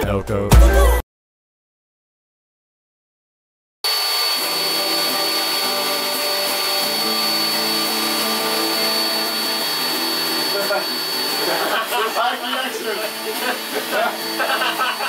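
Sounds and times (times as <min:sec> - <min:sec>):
small electric motor whirring: 0:03.9 - 0:15.0.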